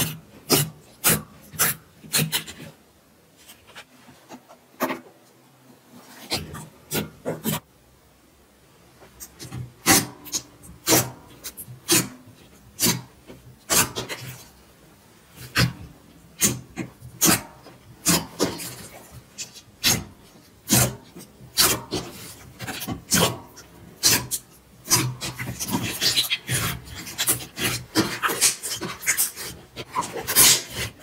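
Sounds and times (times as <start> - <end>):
slime popping and squelching: 16.4 - 31.0.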